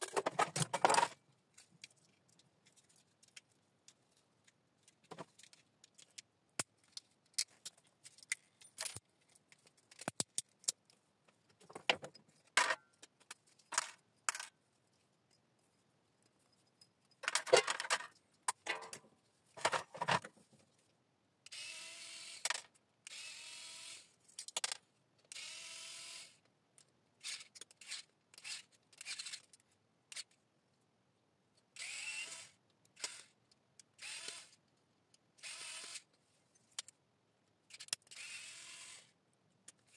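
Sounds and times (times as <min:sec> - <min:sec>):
small metal parts clattering: 0:00.0 - 0:04.0, 0:06.8 - 0:10.7, 0:16.3 - 0:19.0
cordless screwdriver running: 0:31.8 - 0:33.3, 0:34.0 - 0:34.6, 0:35.4 - 0:36.0, 0:38.1 - 0:39.1.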